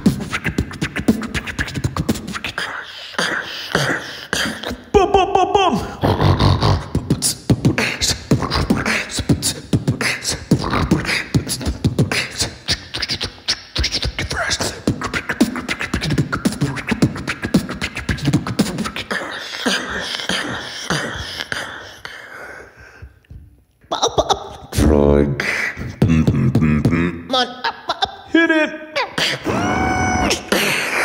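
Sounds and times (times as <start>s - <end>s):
person beatboxing: 0.0s - 22.1s, 23.2s - 28.2s, 29.0s - 31.0s
wavering pitched vocal sound: 0.0s - 22.1s, 23.9s - 31.0s.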